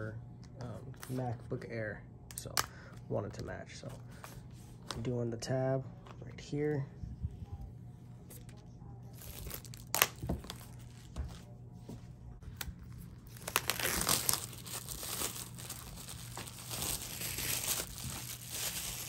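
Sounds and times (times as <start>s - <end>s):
plastic wrap crinkling: 9.1s - 11.0s, 12.6s - 19.0s.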